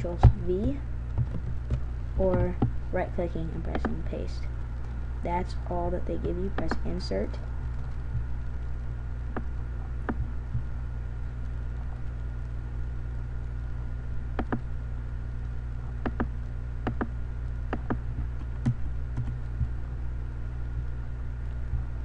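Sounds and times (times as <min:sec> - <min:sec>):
steady low hum: 0:00.0 - 0:22.0
computer mouse clicking: 0:14.4 - 0:14.6, 0:16.0 - 0:16.3, 0:16.9 - 0:17.1.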